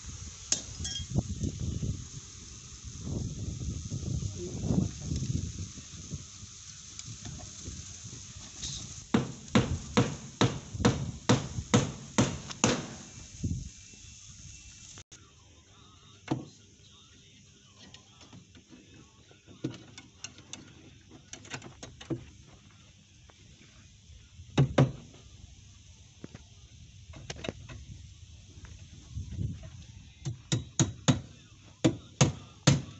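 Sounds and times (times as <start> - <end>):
hammer knocking on wood formwork: 9.1 - 13.0, 24.6 - 25.1, 30.2 - 32.9.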